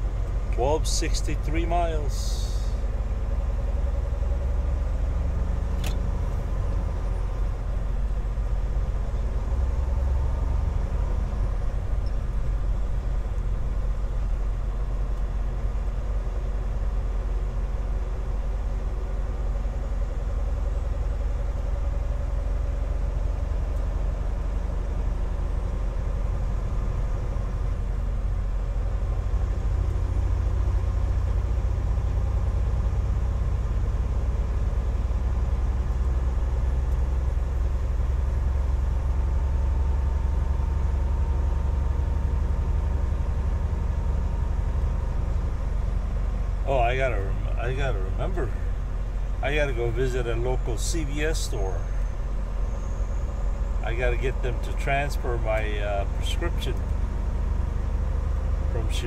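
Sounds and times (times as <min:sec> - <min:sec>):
truck diesel engine and road noise: 0:00.0 - 0:59.0
sharp click: 0:05.8 - 0:06.1.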